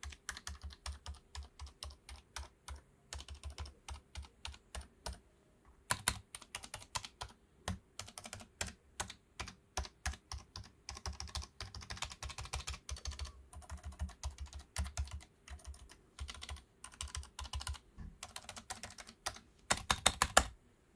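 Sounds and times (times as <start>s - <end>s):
mechanical keyboard typing: 0.0s - 5.2s, 5.9s - 20.6s.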